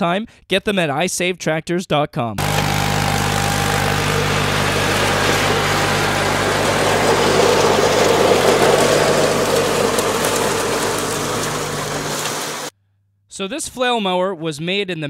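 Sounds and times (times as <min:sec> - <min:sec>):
flail mower whirring through brush: 0:02.4 - 0:12.7
garden tractor engine running: 0:02.4 - 0:12.7.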